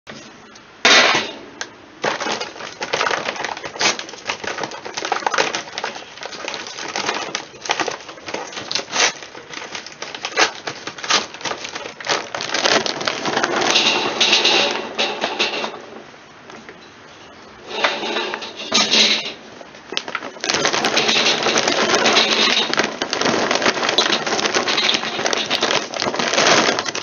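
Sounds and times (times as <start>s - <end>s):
charcoal clattering onto grate: 0.8s - 1.4s, 2.0s - 16.0s, 17.6s - 27.0s
metal grill lid and grates clanking: 13.3s - 15.9s, 17.6s - 19.4s.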